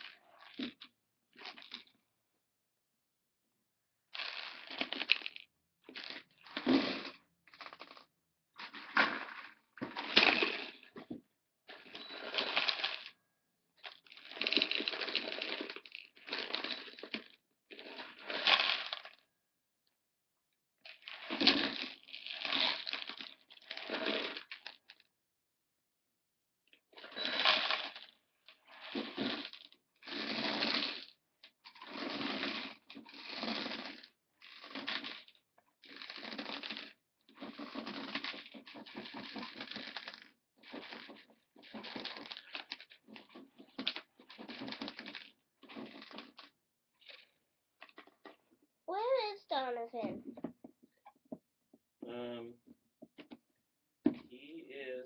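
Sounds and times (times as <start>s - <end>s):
metal balls rattling in plastic toy: 4.2s - 11.1s, 11.7s - 13.2s, 13.8s - 19.2s, 20.9s - 25.1s, 27.0s - 48.3s.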